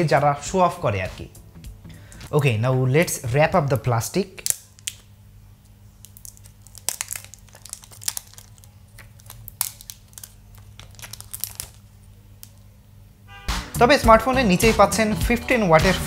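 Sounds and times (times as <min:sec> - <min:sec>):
plastic film crinkling: 0:04.4 - 0:05.1, 0:05.8 - 0:12.7
plastic film snapping: 0:04.4 - 0:05.1, 0:06.0 - 0:12.7.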